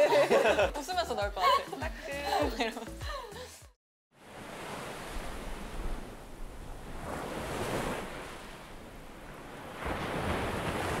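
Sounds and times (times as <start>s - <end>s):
ocean surf breaking: 4.2s - 11.0s.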